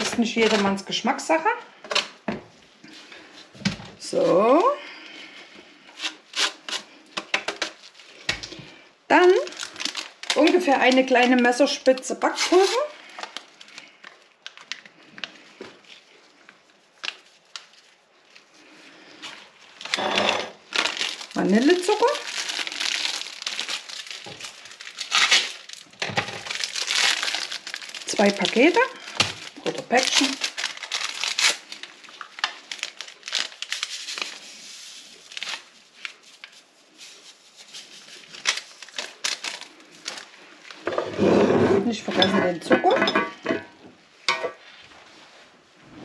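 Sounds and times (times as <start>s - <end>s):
paper sachets crinkling and tearing: 0.0s - 1.2s, 4.0s - 40.8s.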